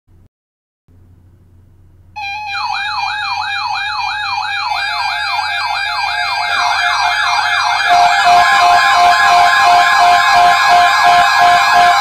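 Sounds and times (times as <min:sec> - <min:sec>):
steady alert tones: 0:02.2 - 0:12.0
warbling siren: 0:02.2 - 0:12.0.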